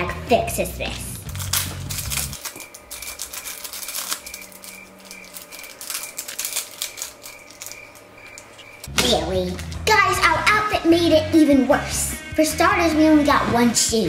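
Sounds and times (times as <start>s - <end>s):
plastic bag tearing and crinkling: 1.2s - 8.9s.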